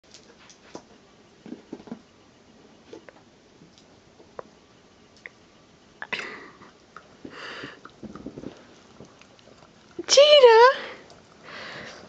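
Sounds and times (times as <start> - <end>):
dog licking and snuffling: 6.9 - 10.2.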